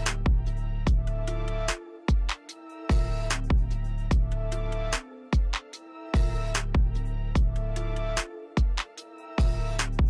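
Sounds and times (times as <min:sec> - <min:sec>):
sustained bass line: 0:00.0 - 0:01.7, 0:02.9 - 0:05.0, 0:06.2 - 0:08.2, 0:09.4 - 0:10.0.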